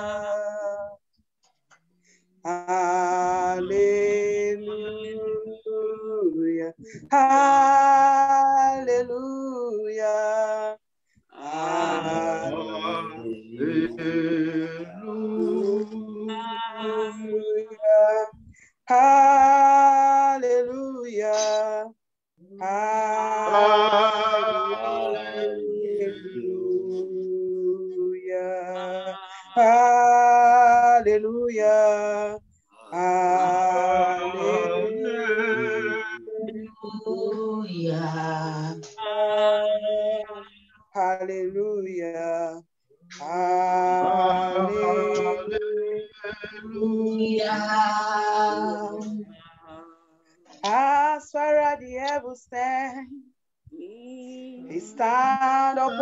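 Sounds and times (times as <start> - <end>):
woman singing unaccompanied: 11.4 - 56.0.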